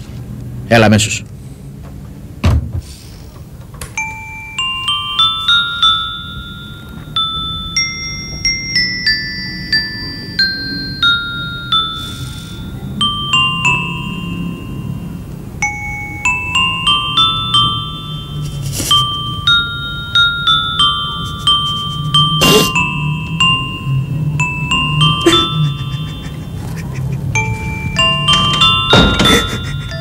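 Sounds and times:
music box melody: 3.9 - 30.0.

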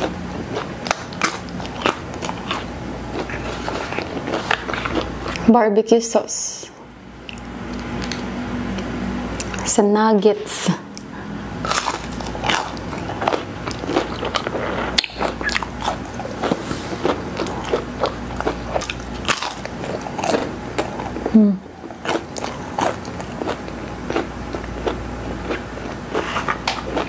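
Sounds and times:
person chewing food: 0.0 - 5.4, 10.9 - 27.0.

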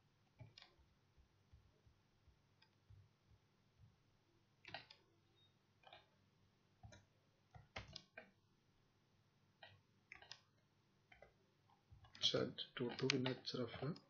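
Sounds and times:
computer keyboard keystrokes: 4.6 - 5.0, 6.8 - 8.3, 9.6 - 10.4, 12.0 - 14.0.

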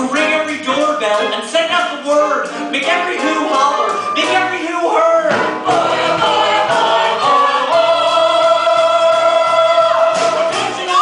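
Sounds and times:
chorus singing: 2.7 - 11.0.

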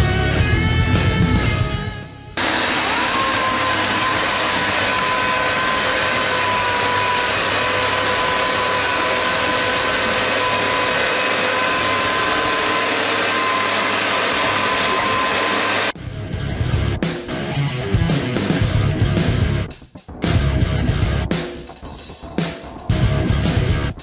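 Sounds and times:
small electric motor whirring: 2.4 - 16.0.

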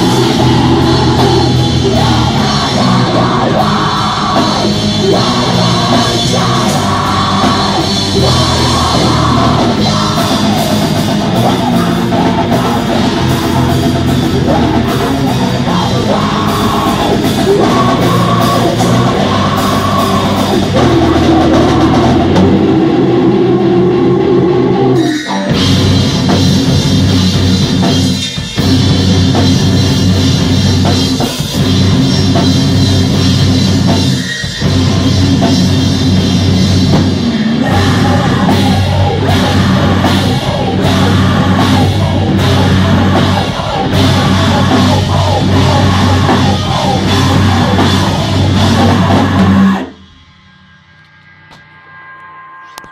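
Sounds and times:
person singing into microphone: 0.0 - 25.6, 37.5 - 49.9
drum kit: 0.0 - 52.9
electric guitar: 0.0 - 52.9.

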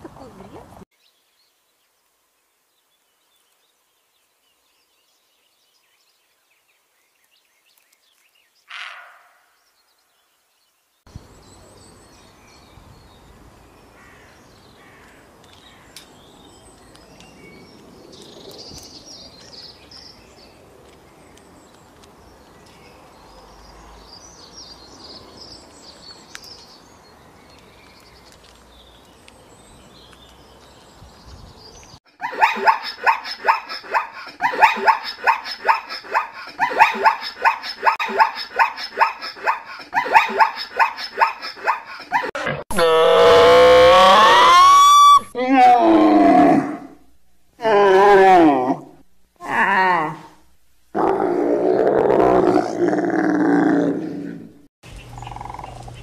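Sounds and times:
small birds chirping faintly: 0.1 - 42.2, 54.8 - 56.0
deer bark: 32.2 - 41.8.

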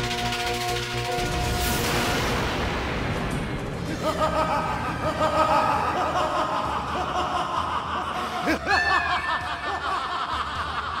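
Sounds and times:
man laughing: 3.8 - 11.0.

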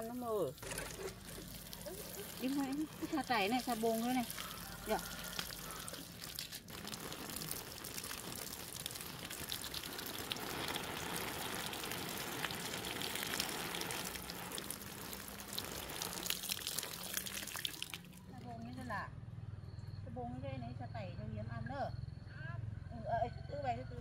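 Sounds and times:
water splashing onto leaves: 0.0 - 18.4
water dripping: 0.0 - 18.5.

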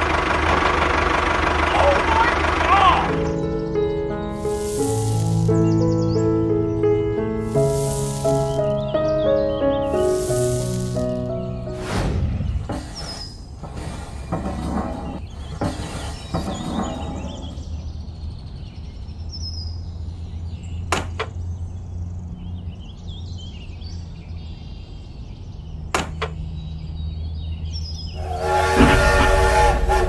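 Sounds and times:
cardboard scraping in sand: 4.4 - 5.6, 7.4 - 8.9, 9.9 - 17.5.

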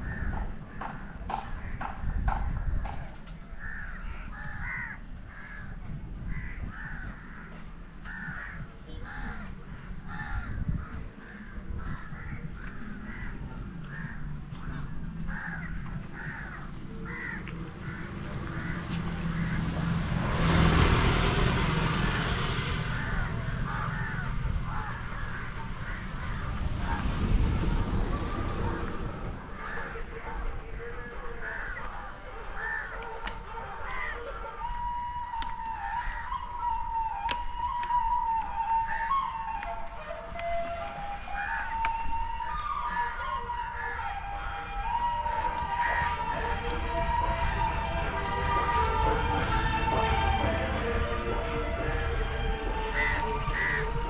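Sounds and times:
crows cawing: 0.0 - 2.8, 3.6 - 20.0, 21.5 - 27.0, 29.5 - 30.4, 31.3 - 33.0, 33.8 - 34.4, 35.6 - 36.4, 38.8 - 39.3, 41.3 - 41.8, 42.5 - 44.2, 44.9 - 46.8, 51.8 - 54.0
loud rushing noise: 17.7 - 30.4, 45.5 - 54.0.

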